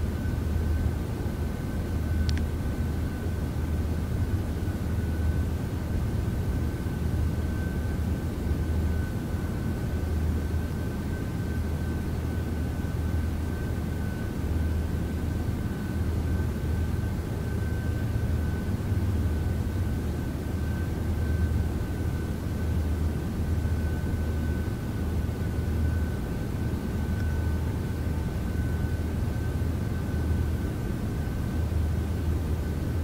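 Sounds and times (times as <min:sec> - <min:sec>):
low droning hum: 0:00.0 - 0:33.0.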